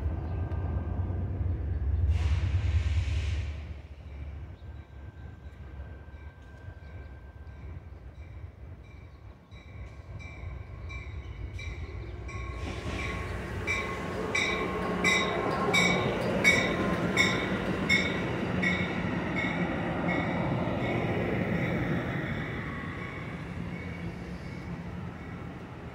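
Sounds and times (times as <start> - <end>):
train rumble and wheel noise: 0.0 - 25.9
train bell ringing: 6.2 - 21.0.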